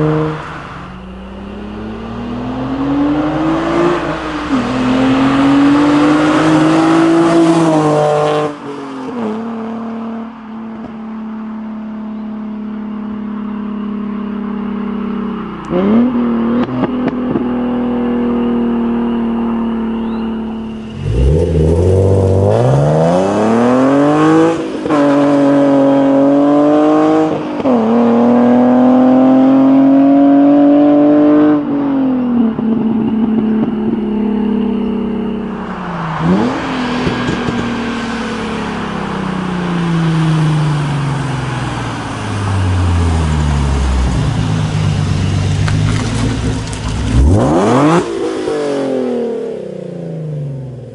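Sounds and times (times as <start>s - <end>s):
car passing by: 0.0s - 10.0s, 20.6s - 29.4s, 35.4s - 49.4s
car engine accelerating: 0.0s - 50.9s.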